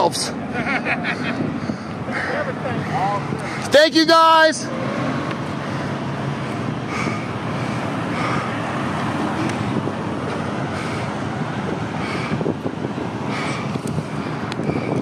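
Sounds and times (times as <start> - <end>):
road traffic noise: 0.0 - 15.0
wind buffeting microphone: 1.0 - 3.7, 4.9 - 15.0.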